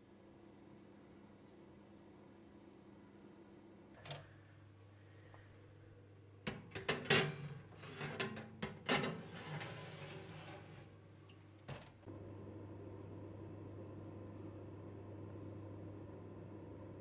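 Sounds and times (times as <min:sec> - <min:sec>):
oven low hum: 0:01.4 - 0:17.0
metal tray scraping on oven rack: 0:06.9 - 0:11.0.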